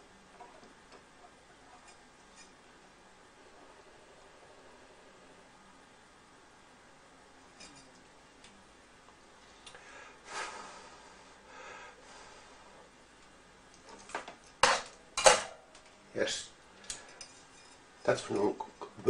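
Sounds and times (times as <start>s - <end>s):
soft breaths: 9.3s - 13.0s, 16.7s - 17.6s.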